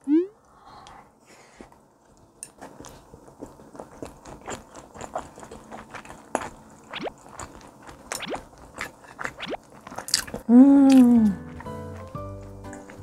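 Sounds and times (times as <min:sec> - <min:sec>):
person chewing food: 0:02.0 - 0:13.0.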